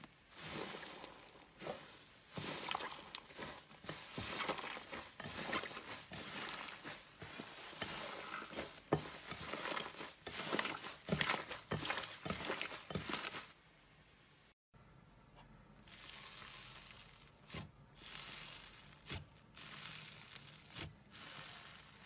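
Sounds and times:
hands squishing slime: 0.4 - 13.5.

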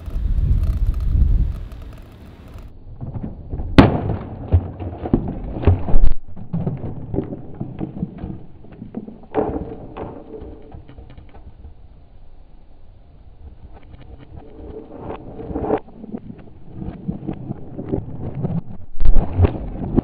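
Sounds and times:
coffee maker crashing onto bricks: 3.7 - 6.9.

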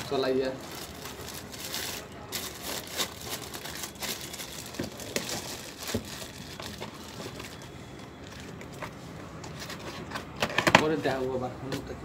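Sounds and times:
plastic bag crinkling: 0.0 - 8.6.

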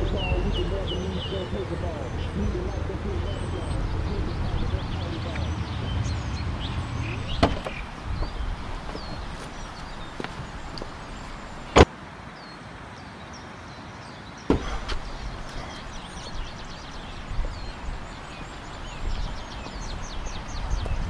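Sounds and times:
light footsteps: 0.0 - 11.9, 14.5 - 21.0
birds chirping: 0.0 - 21.0
car door slamming: 7.3 - 8.3, 14.5 - 15.2.

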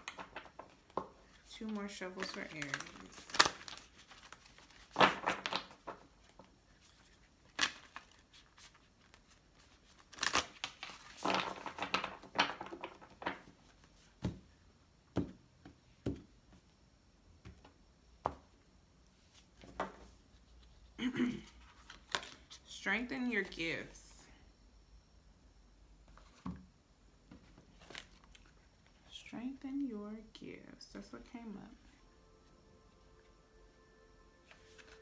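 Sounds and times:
cards shuffling: 0.0 - 13.8, 21.4 - 22.7, 34.4 - 35.0.

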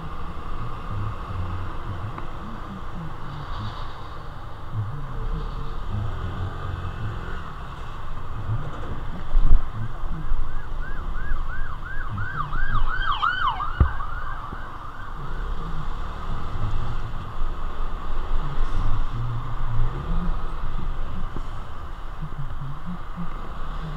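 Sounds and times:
motorcycle rumble: 0.0 - 23.9
emergency siren yelping: 9.8 - 16.0.

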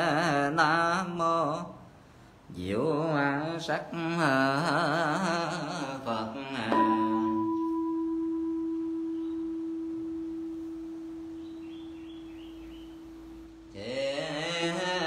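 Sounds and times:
person chanting: 2.5 - 15.0
bowl bell ringing: 6.7 - 13.4.

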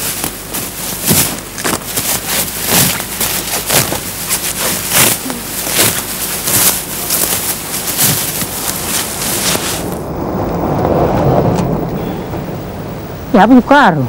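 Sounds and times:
dry grass rustling and tearing: 0.0 - 10.7.

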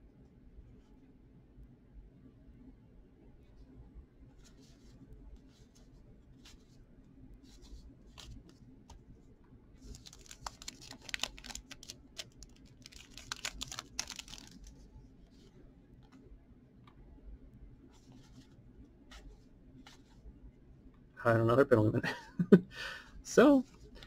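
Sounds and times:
cards being flipped by hand: 7.5 - 9.0, 9.8 - 14.8.

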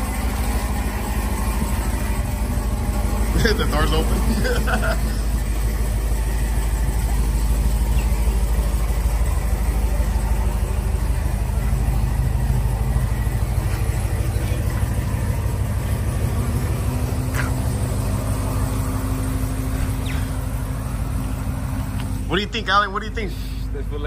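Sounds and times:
car engine idling: 0.0 - 24.0.

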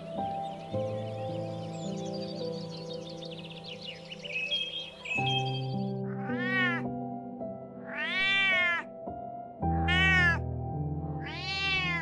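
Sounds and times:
cat meowing: 6.0 - 6.9, 7.8 - 8.9, 9.7 - 10.5, 11.2 - 12.0.

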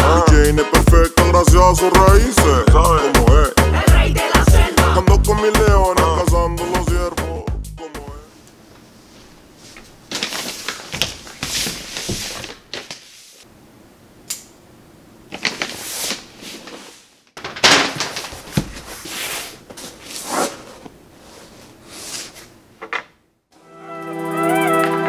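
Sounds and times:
wrapping rustling and crinkling: 9.1 - 13.4, 15.3 - 22.5.

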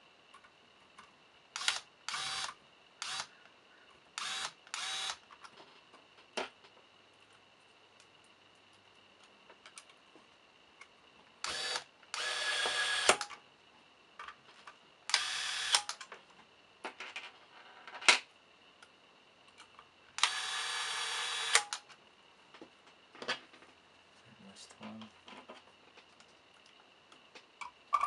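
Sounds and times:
electric screwdriver driving screws: 1.6 - 3.3, 4.2 - 5.2, 11.4 - 13.3, 15.1 - 16.0, 20.2 - 21.8.

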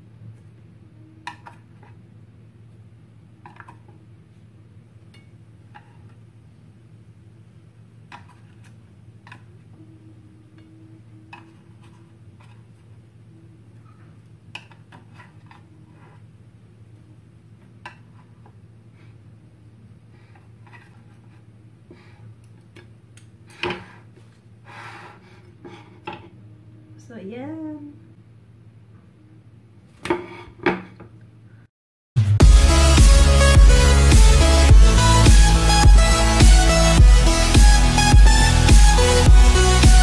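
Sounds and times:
steady low hum: 32.2 - 40.0.

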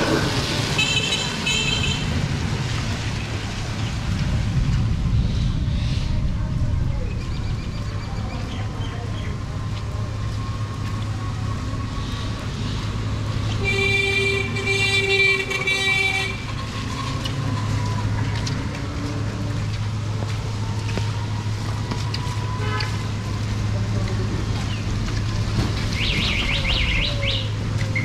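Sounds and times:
low street noise: 0.0 - 28.0
vehicle horn honk: 13.6 - 16.4, 22.6 - 22.9.

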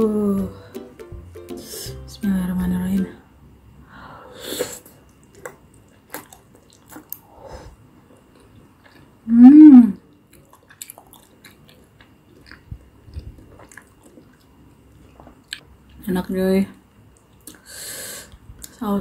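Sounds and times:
person humming mmm: 0.4 - 2.1, 9.3 - 10.0
chewing sounds: 5.0 - 7.3, 10.1 - 15.6.

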